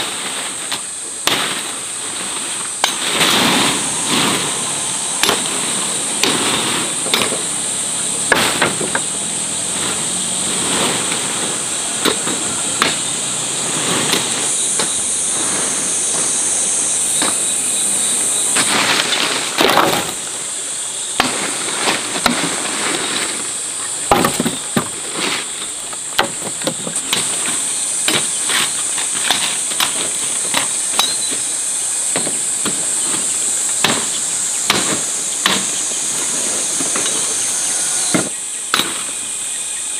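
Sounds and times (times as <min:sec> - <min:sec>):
high-pitched insect drone: 0:00.0 - 0:39.9
knocks and cracks: 0:24.1 - 0:25.0, 0:32.1 - 0:37.3.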